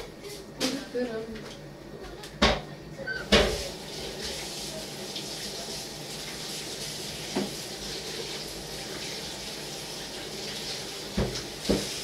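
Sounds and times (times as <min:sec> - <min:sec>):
tap running into sink: 0:03.3 - 0:04.4, 0:07.2 - 0:07.6, 0:11.0 - 0:12.0.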